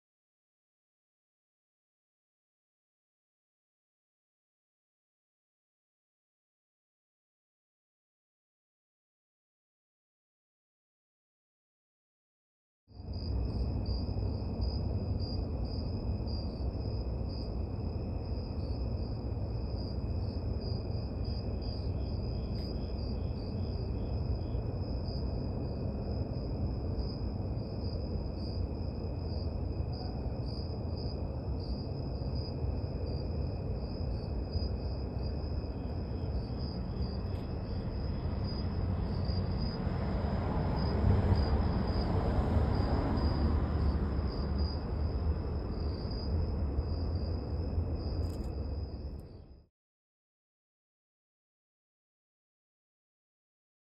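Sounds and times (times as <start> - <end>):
lower fainter insect trill: 13.0 - 49.6
low rumbling background noise: 13.0 - 49.7
insects trilling: 15.2 - 40.2.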